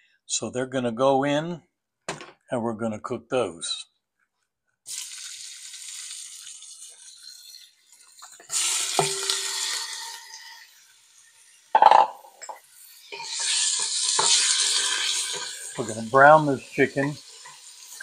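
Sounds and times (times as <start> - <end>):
chicken sizzling in oil: 4.9 - 11.7, 12.6 - 18.0
knock of pieces tipped in: 11.8 - 12.2
spatula stirring in pan: 12.9 - 16.4.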